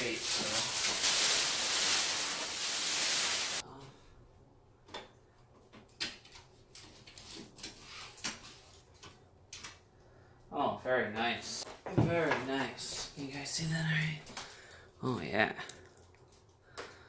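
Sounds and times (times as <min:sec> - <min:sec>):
plastic bag crinkling: 0:00.0 - 0:03.6.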